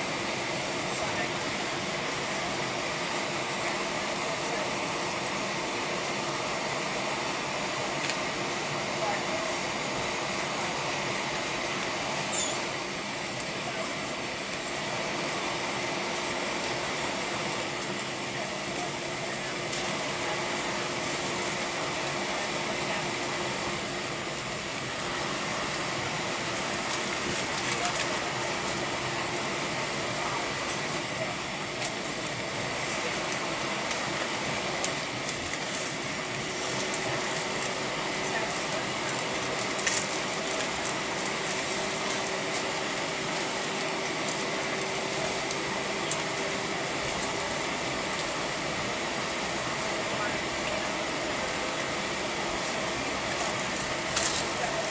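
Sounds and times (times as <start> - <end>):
constant low hum: 0.0 - 54.9.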